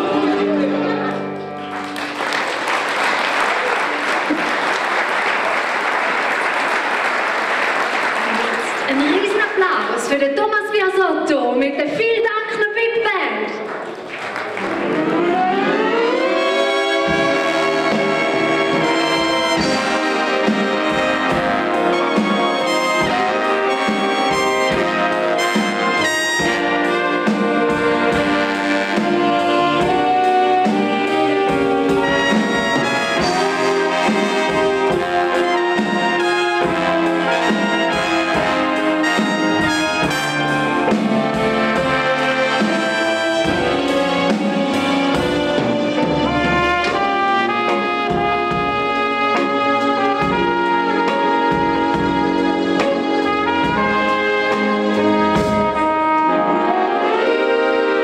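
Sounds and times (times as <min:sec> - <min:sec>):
big band playing: 0:00.0 - 0:58.0.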